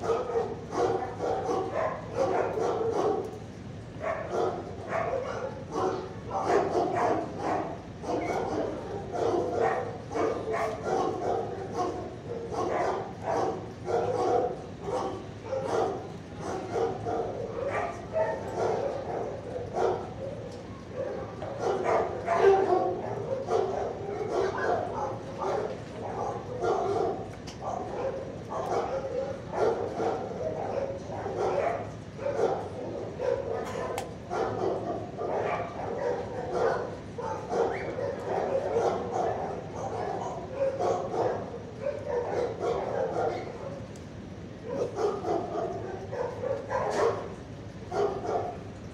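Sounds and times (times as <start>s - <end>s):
dogs barking: 0.0s - 48.9s.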